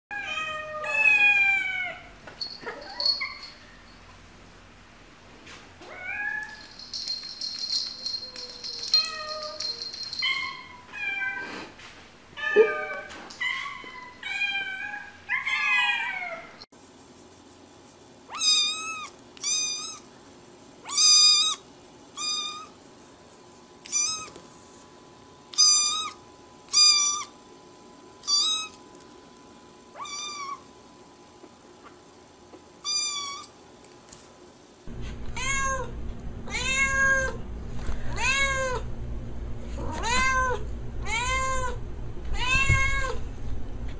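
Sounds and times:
cat meowing: 18.3s - 20.0s, 36.5s - 37.4s, 39.8s - 41.8s, 42.4s - 43.2s.

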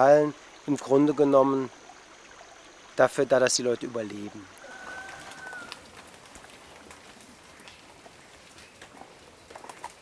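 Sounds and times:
bushes rustling: 4.0s - 10.0s.

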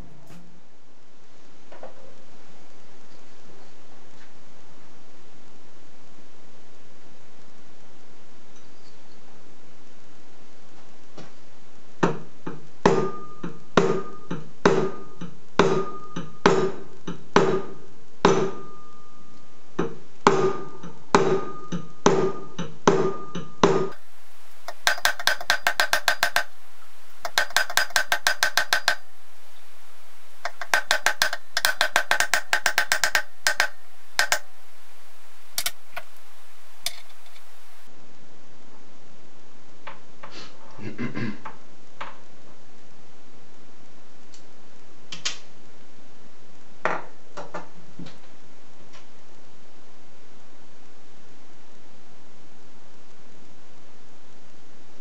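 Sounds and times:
hammer tapping brass tube: 24.6s - 26.6s, 27.2s - 29.1s, 30.4s - 34.6s.

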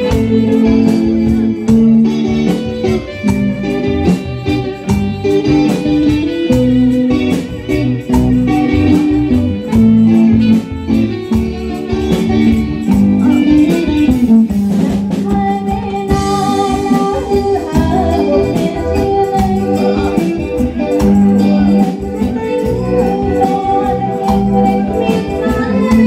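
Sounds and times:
drums keeping a steady beat: 0.0s - 26.0s
electric guitar: 0.0s - 26.0s
keyboard: 0.0s - 26.0s
woman singing: 13.2s - 26.0s.

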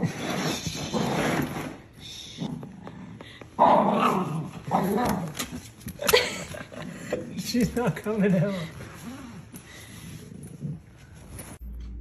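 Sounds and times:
small dog growling: 2.4s - 5.6s.

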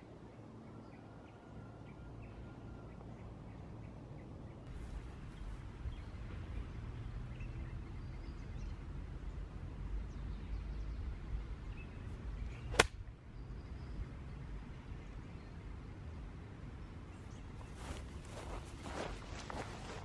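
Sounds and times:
golf club striking ball: 12.7s - 13.0s.

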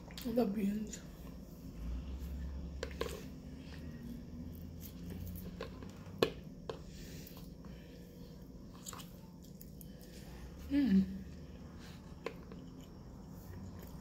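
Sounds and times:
soft chewing: 7.2s - 10.7s, 11.3s - 14.0s.

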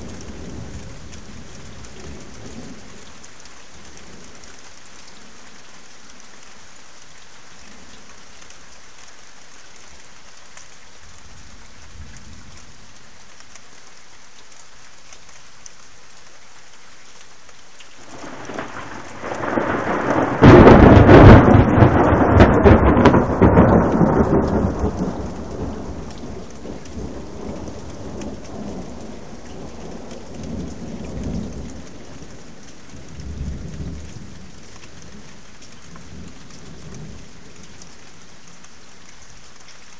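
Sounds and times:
steady rain hiss: 0.0s - 39.9s
thunder crashing and rumbling: 18.1s - 31.8s.

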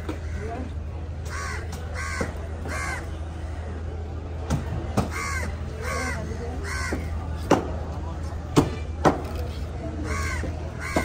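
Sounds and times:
crows cawing: 0.0s - 3.5s, 5.0s - 7.1s, 10.0s - 11.0s.

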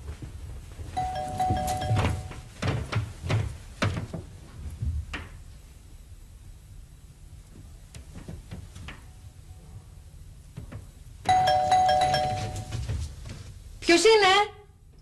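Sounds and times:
high-heeled footsteps: 0.0s - 4.4s, 12.0s - 13.5s.

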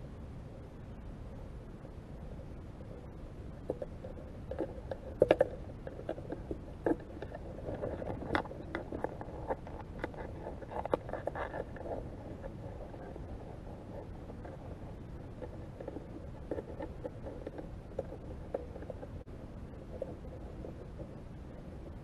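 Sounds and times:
low water rumble: 0.0s - 22.0s
crab claws clicking underwater: 3.6s - 22.0s.

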